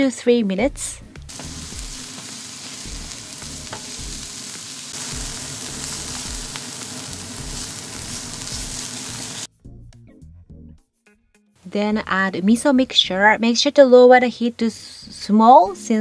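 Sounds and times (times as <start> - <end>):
garlic and leek sizzling in oil: 1.2 - 9.5.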